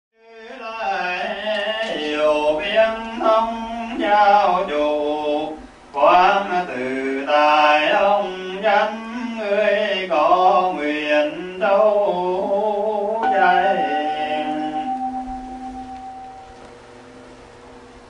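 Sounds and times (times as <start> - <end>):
man singing a chant: 0.2 - 15.1.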